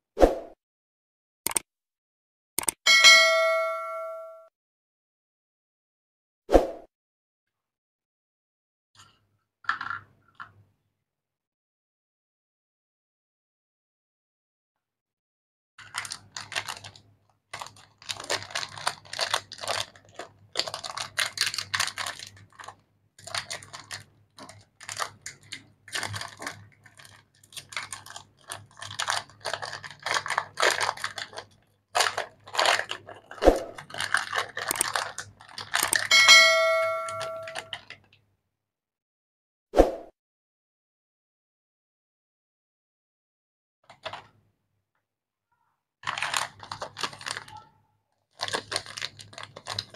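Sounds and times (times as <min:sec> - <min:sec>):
bell-like chime: 0:02.9 - 0:04.5, 0:36.1 - 0:37.7
plastic wrapper crinkling and tearing: 0:15.8 - 0:36.1, 0:46.0 - 0:49.9.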